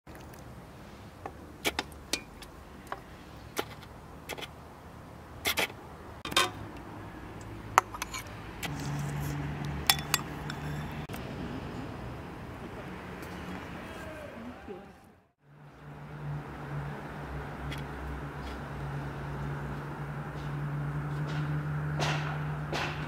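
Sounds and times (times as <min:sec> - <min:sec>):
metal ladle clinking on pot and bowls: 0:09.8 - 0:11.1.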